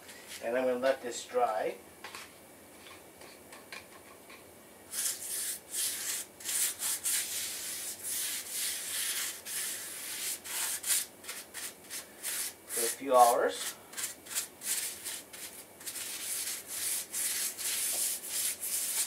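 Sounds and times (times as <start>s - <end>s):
paintbrush scrubbing concrete: 4.9s - 19.0s.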